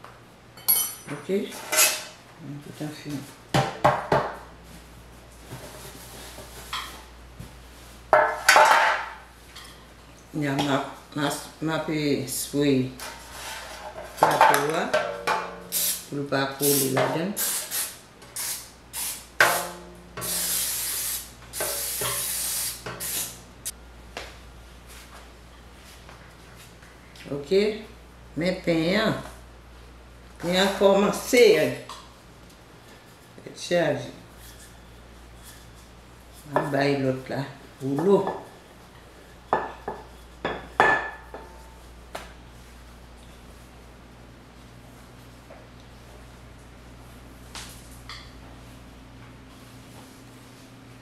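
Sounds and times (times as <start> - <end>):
faint room hum: 0.0 - 51.0
aerosol spray hissing onto metal pan: 20.2 - 23.4.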